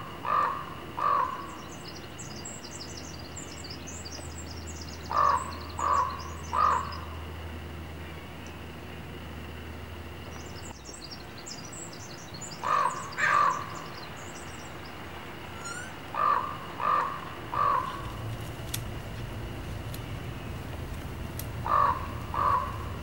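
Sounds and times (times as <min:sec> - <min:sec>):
small birds chirping faintly: 0:00.0 - 0:23.0
crow cawing: 0:00.2 - 0:01.6, 0:05.1 - 0:07.2, 0:12.6 - 0:13.9, 0:15.5 - 0:23.0.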